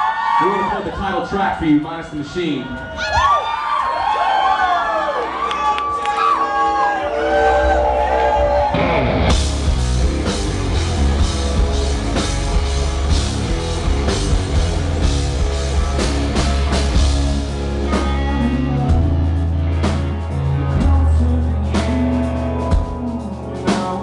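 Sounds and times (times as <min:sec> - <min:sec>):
rock band playing live: 0:07.3 - 0:24.0
drum kit beat: 0:08.8 - 0:24.0.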